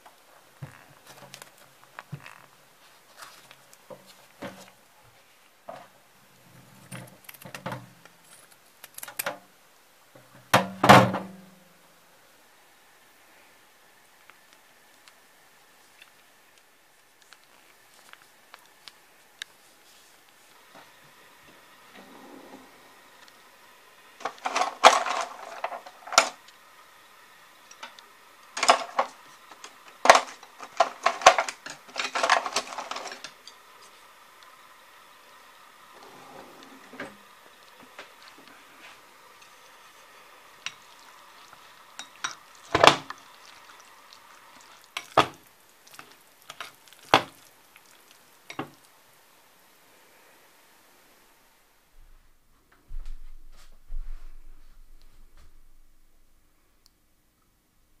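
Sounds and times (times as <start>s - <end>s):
cutlery clattering in a drawer: 24.2s - 26.3s, 30.1s - 33.5s.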